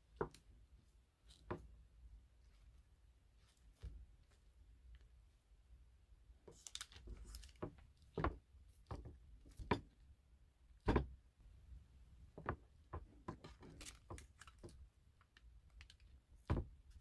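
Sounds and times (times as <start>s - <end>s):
paper rustle: 6.5s - 7.7s, 13.5s - 14.8s.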